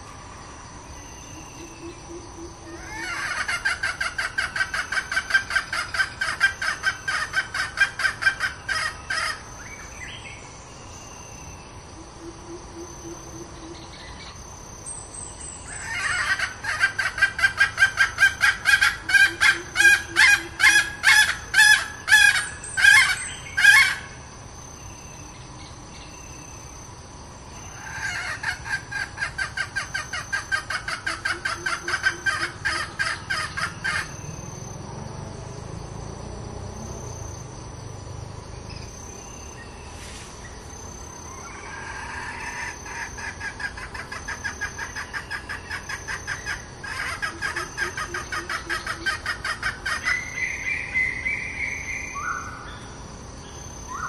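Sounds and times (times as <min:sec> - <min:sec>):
crickets trilling: 0:00.0 - 0:54.0
hen clucking calls: 0:01.5 - 0:09.4, 0:15.7 - 0:24.0, 0:27.8 - 0:34.2, 0:41.4 - 0:50.4.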